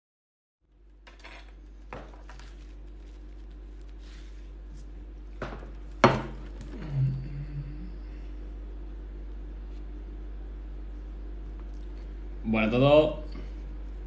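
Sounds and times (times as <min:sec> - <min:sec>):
steady low hum: 0:00.7 - 0:14.0
paper napkin rustling: 0:01.5 - 0:06.7.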